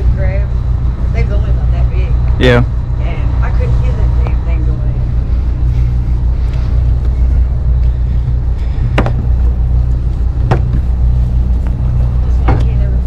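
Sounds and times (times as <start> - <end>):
boat engine idling: 0.0 - 13.0
sharp knocks: 8.9 - 9.2, 10.4 - 10.8.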